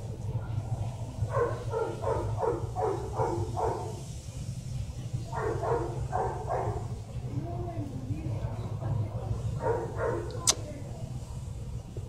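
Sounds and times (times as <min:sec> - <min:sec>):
steady low hum: 0:00.0 - 0:12.0
dog barking: 0:01.3 - 0:04.0, 0:05.3 - 0:06.9, 0:09.6 - 0:10.4.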